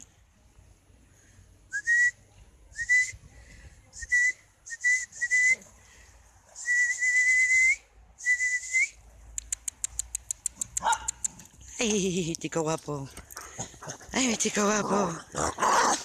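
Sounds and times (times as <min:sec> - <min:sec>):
person whistling short notes: 0:01.7 - 0:02.2, 0:02.8 - 0:03.2, 0:04.0 - 0:05.6, 0:06.6 - 0:09.0.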